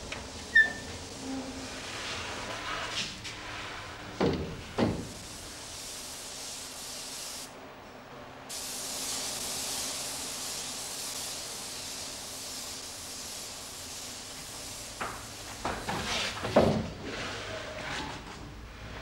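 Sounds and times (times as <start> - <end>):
spray gun hissing: 4.8 - 7.5, 8.5 - 16.0.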